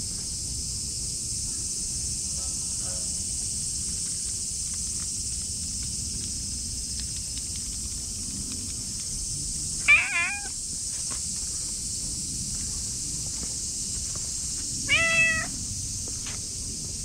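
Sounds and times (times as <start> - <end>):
cat meowing: 9.8 - 10.5, 14.9 - 15.5.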